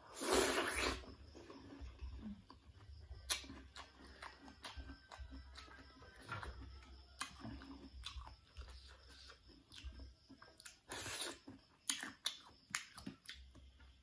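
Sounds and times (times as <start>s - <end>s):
crunchy bite into fruit: 0.1s - 1.8s, 10.6s - 13.4s
chewing: 0.2s - 13.9s.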